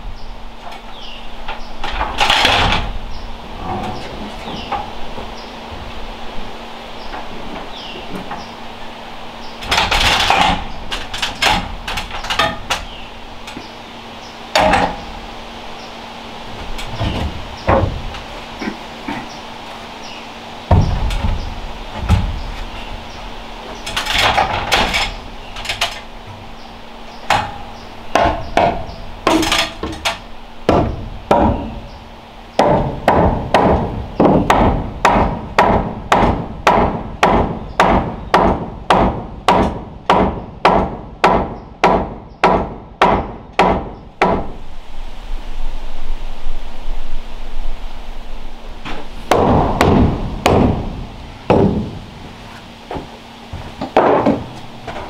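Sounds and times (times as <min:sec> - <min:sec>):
hammer striking timber: 0:27.3 - 0:31.8, 0:32.6 - 0:44.6, 0:49.3 - 0:52.0, 0:52.9 - 0:54.6.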